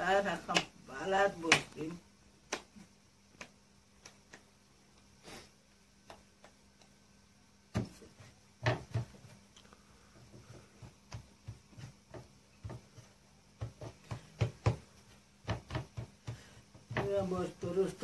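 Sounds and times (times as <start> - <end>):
hands patting dough: 0.0 - 5.1, 5.7 - 18.0
dough thumped on wooden board: 7.7 - 9.4, 10.2 - 17.8.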